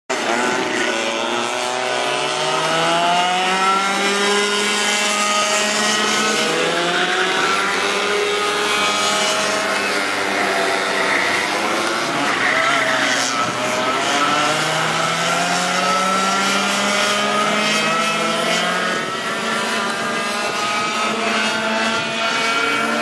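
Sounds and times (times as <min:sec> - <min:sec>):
go-kart engines: 0:00.1 - 0:23.0.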